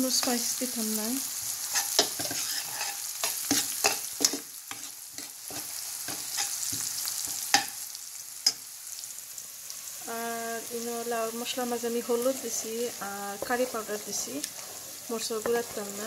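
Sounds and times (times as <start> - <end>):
food sizzling in a pan: 0.0 - 16.0
utensil scraping and knocking pan: 1.7 - 7.7.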